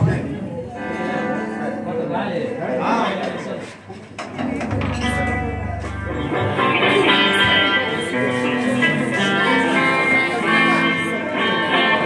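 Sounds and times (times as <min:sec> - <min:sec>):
plucked guitar tune: 0:04.4 - 0:12.0.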